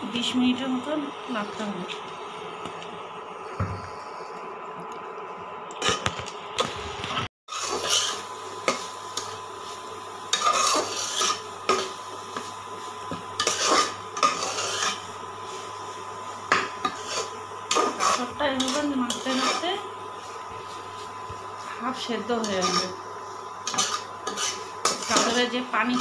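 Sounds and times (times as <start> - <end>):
metal spoon scraping pan: 7.5 - 9.3, 10.3 - 12.5, 13.4 - 15.1, 16.5 - 19.8, 22.3 - 23.0, 23.6 - 26.0.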